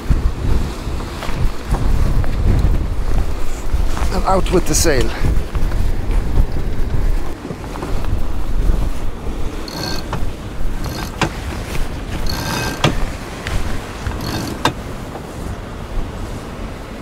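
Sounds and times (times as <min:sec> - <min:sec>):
sea rushing past hull: 0:00.0 - 0:17.0
wind on microphone: 0:00.0 - 0:17.0
winch whirring and clicking: 0:06.4 - 0:15.3.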